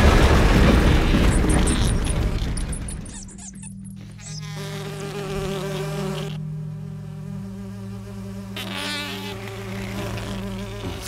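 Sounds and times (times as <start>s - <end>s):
insect-like buzz: 0.9s - 11.0s
low steady drone: 1.8s - 8.7s.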